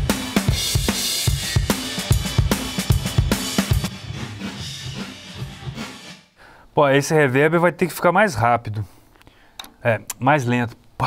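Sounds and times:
cymbals: 0:00.0 - 0:06.4.

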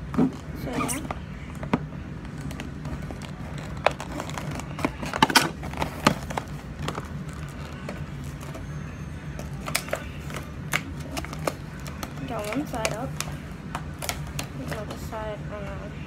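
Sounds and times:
packaging crinkling: 0:02.4 - 0:08.6.

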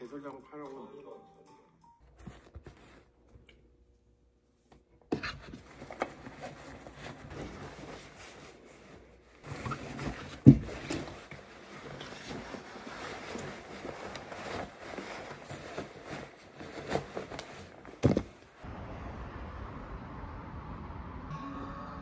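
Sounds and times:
clothes rustling: 0:02.1 - 0:03.4, 0:04.6 - 0:18.6.

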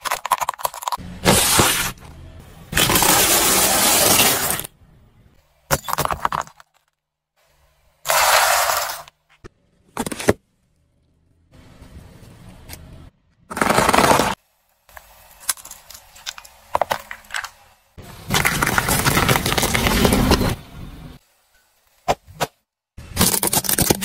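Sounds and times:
car tyre crushing objects: 0:13.4 - 0:14.4, 0:18.3 - 0:20.5.

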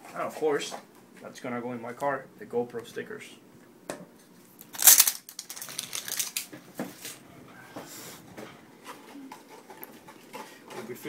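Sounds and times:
packaging rustling: 0:04.5 - 0:07.2.

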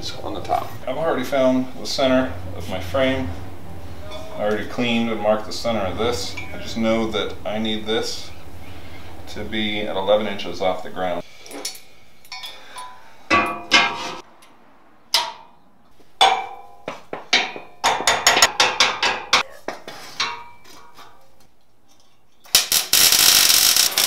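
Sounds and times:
welding arc crackling: 0:22.5 - 0:24.0.

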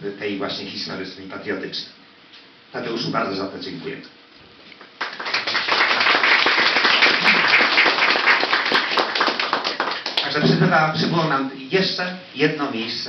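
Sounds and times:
small audience applauding: 0:04.8 - 0:10.4.

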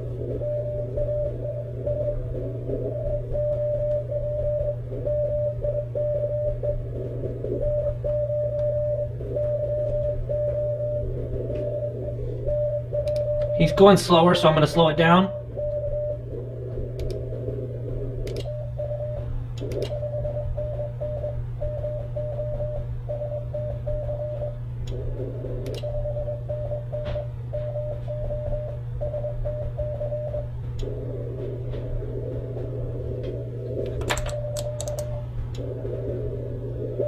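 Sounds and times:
morse code tone: 0:00.0 - 0:31.2
low steady hum: 0:00.0 - 0:37.0
sharp clicks: 0:13.0 - 0:13.5, 0:16.9 - 0:17.3, 0:18.2 - 0:18.6, 0:19.5 - 0:20.0, 0:25.6 - 0:25.9, 0:33.2 - 0:35.7.

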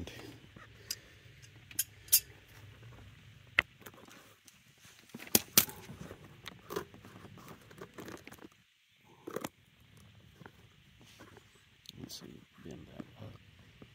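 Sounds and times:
metal tool clicks and clinks: 0:01.7 - 0:02.3.

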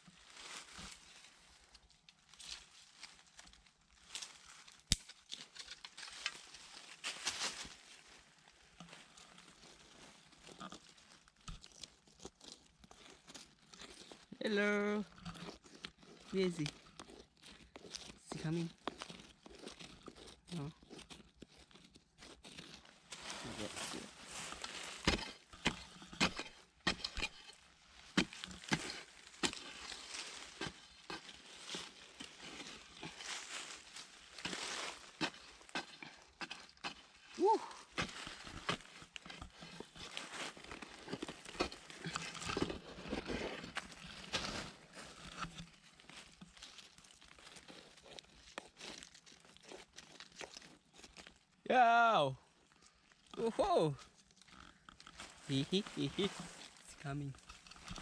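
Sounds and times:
stick scraping dry earth and leaves: 0:00.0 - 0:51.6, 0:52.6 - 0:58.0
metal blade chopping stony soil: 0:24.4 - 0:33.5, 0:34.4 - 0:44.7.

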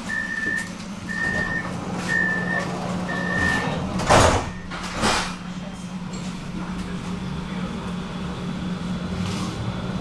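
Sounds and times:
tram low hum: 0:00.0 - 0:10.0
doors shutting thump: 0:03.4 - 0:05.4.

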